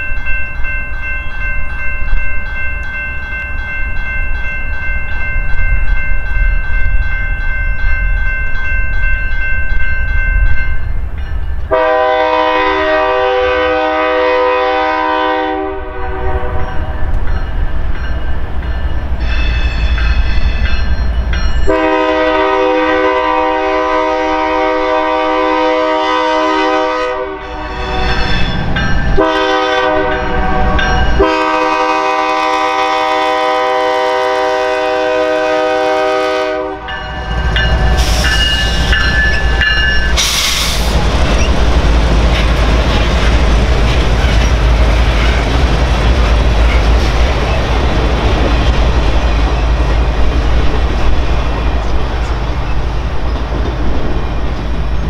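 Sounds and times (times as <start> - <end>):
warning bell ringing: 0.0 - 11.7, 16.0 - 22.1, 27.5 - 31.6, 36.8 - 40.3
low rumble of train: 0.0 - 55.0
wind: 0.0 - 55.0
locomotive air horn blasts: 11.7 - 16.9, 21.7 - 28.1, 29.2 - 37.1.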